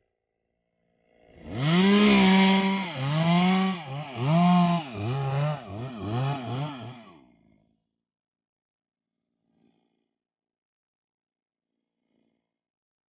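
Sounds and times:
chainsaw revving: 1.3 - 7.2.

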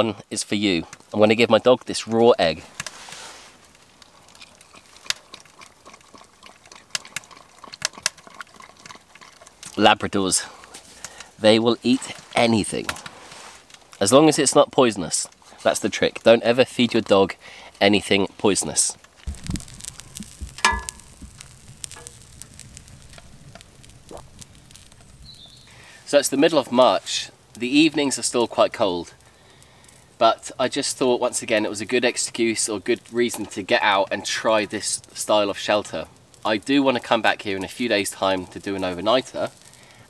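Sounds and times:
omelette sizzling in a skillet: 2.6 - 9.8, 13.0 - 14.0, 19.0 - 30.3, 34.9 - 40.0
dog licking wetly: 4.4 - 9.6.

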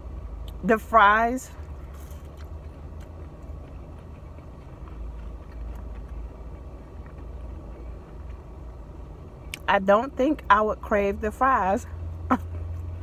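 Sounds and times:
car idling hum: 0.0 - 13.0
faint chewing: 1.5 - 9.7.

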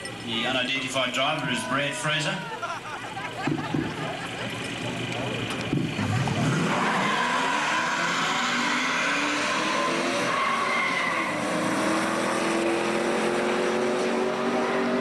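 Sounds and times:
truck engines revving: 0.0 - 15.0
tyres squealing: 6.3 - 11.8.

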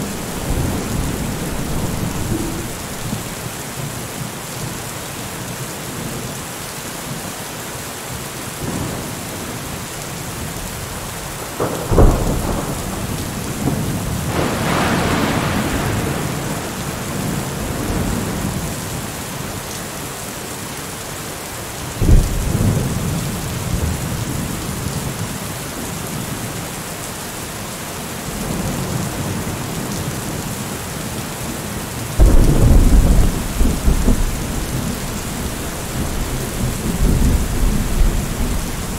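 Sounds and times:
thunderclaps: 0.0 - 3.4, 11.4 - 18.5, 32.2 - 38.9
rolling thunder rumble: 0.0 - 3.5, 11.4 - 18.6, 32.2 - 38.9
steady rain: 0.0 - 38.9.

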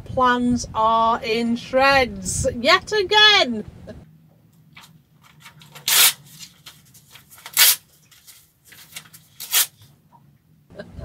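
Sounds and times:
paper crackling: 4.8 - 9.9
paper ripping: 4.8 - 9.9.

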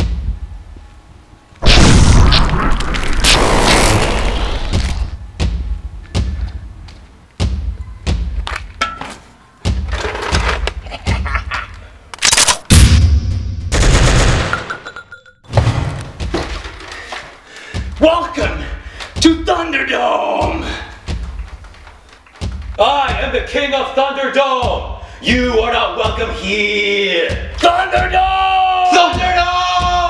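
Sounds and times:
gunshot and impact hits: 1.6 - 5.2
loud explosion: 1.6 - 5.2.

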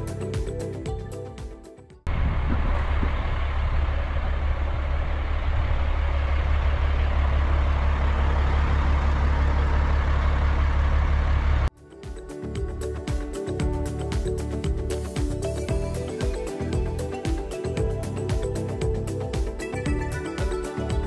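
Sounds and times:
background music: 0.0 - 2.1, 11.7 - 21.0
vehicle engine humming: 2.1 - 11.7.

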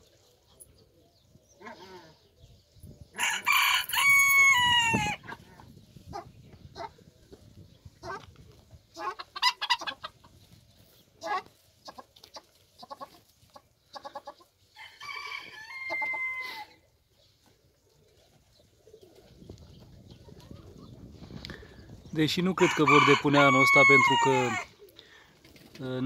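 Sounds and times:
rooster crowing: 3.2 - 5.2, 14.8 - 16.8, 22.6 - 24.7
chickens clucking: 4.9 - 26.0.

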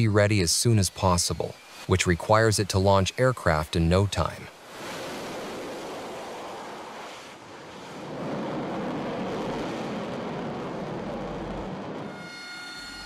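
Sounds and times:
jet engine rushing: 4.7 - 13.0.

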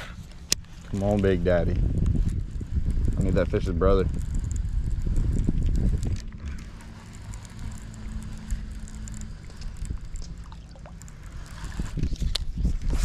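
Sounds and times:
faint steady hum: 0.0 - 13.0
wind rumbling on microphone: 0.0 - 13.0.

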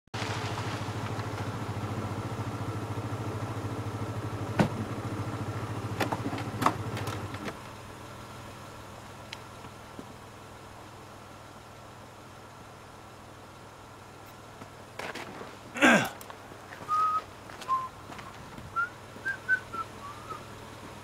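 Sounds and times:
engine idling: 0.2 - 21.0.

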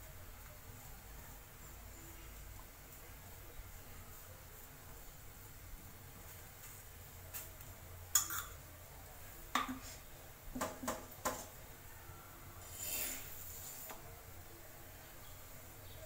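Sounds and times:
metal utensils clinking: 8.1 - 8.6
spatula scraping a griddle: 12.6 - 14.0.

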